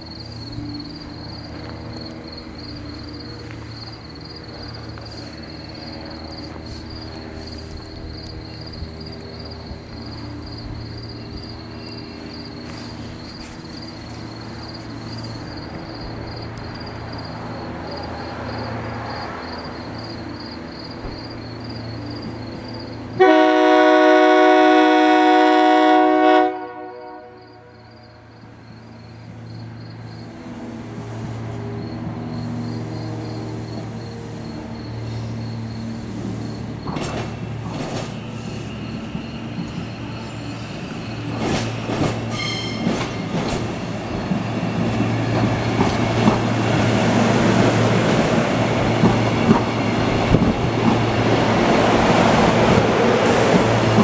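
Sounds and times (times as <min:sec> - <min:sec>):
electric train humming: 0:00.0 - 0:54.0
train air horn blast: 0:23.2 - 0:28.3, 0:42.3 - 0:43.0.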